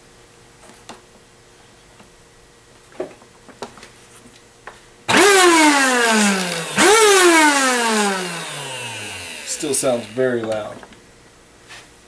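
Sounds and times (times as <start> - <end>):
vacuum motor whine: 5.1 - 10.8.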